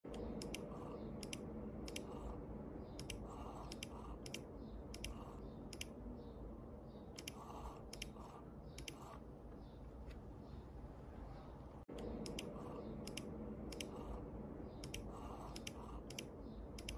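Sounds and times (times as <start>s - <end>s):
steady low hum: 0.0s - 16.9s
mechanism clicking: 0.1s - 2.2s, 11.9s - 14.2s, 14.8s - 16.9s.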